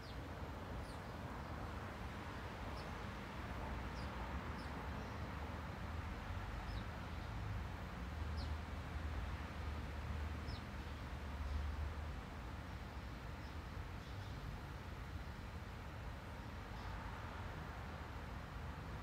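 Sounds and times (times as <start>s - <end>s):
small birds chirping: 0.0s - 0.2s, 0.8s - 1.7s, 2.7s - 3.0s, 3.8s - 5.4s, 6.6s - 7.4s, 8.3s - 8.6s, 10.4s - 11.6s, 12.7s - 14.5s.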